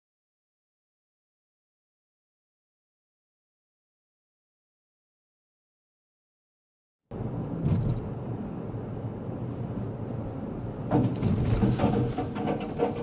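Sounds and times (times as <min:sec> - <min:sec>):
car road and engine noise: 0:07.1 - 0:13.0.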